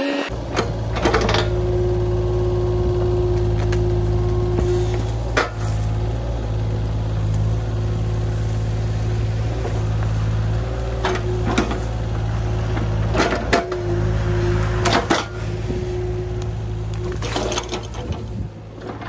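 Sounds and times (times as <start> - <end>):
excavator diesel engine running: 0.0 - 19.0
tree stump cracking: 3.2 - 13.0.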